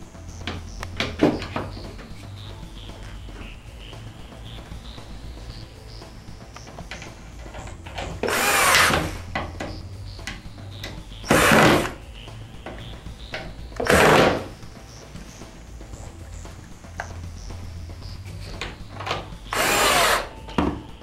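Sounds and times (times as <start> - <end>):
cordless drill running: 8.2 - 9.2, 11.3 - 11.9, 19.5 - 20.3.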